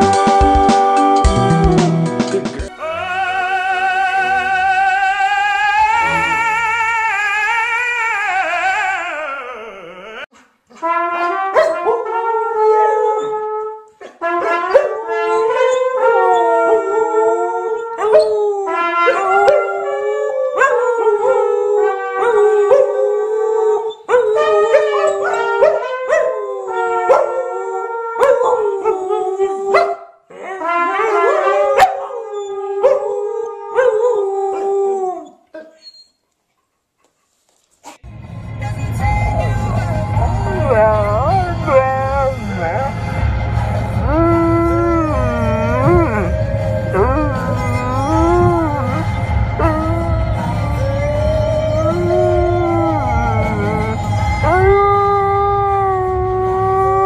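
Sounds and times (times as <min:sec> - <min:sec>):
dogs howling: 0:02.7 - 0:10.3, 0:14.6 - 0:35.4, 0:40.5 - 0:43.2, 0:43.8 - 0:57.0
long wavering pitched call: 0:44.0 - 0:55.0.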